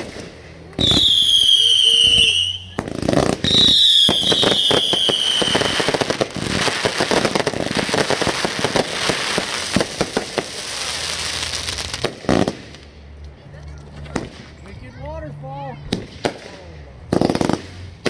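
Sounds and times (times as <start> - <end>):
firework crackling pops: 0.0 - 12.9, 15.9 - 18.0
descending firework whistle: 0.8 - 6.1.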